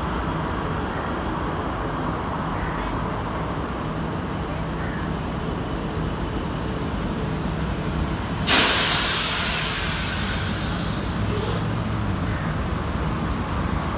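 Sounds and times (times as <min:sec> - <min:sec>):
train rumbling: 0:00.0 - 0:13.9
air release hiss: 0:08.4 - 0:11.6.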